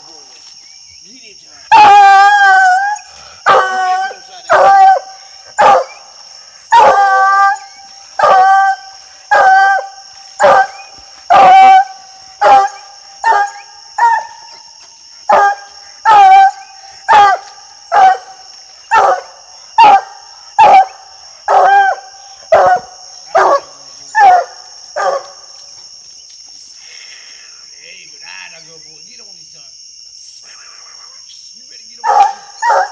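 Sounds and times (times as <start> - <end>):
night insects trilling: 0.0 - 32.9
hound barking: 1.7 - 14.7, 15.3 - 25.4, 32.0 - 32.9.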